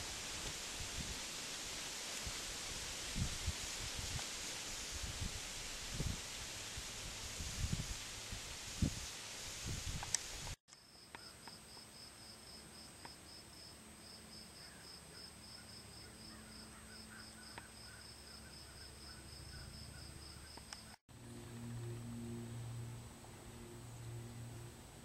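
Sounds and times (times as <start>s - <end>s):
cricket chirping: 10.7s - 21.0s
thin high whine: 21.1s - 25.0s.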